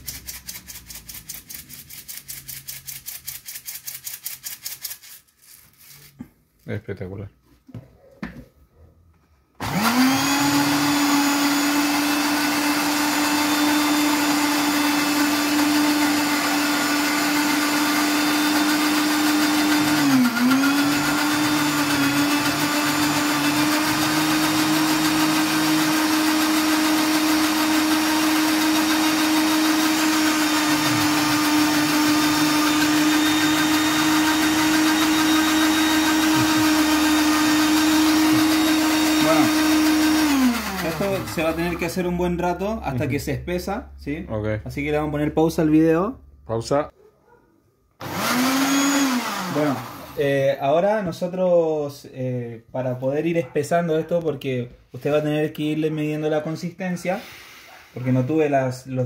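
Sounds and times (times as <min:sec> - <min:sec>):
blender running: 0:09.6 - 0:42.0, 0:48.0 - 0:50.5, 0:57.2 - 0:57.8.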